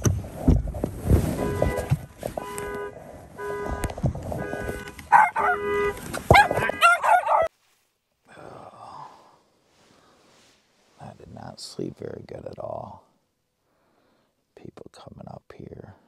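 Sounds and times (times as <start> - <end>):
car horn alarm honks: 1.3 - 7.5.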